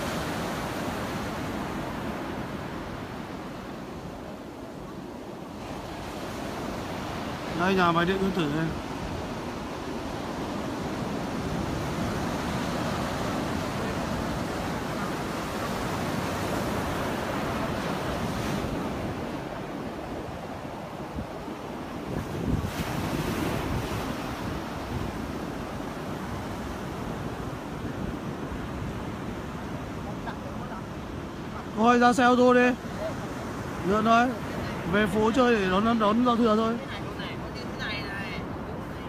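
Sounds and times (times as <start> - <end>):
surf washing up a beach: 0.0 - 39.0
wind buffeting microphone: 8.8 - 31.6.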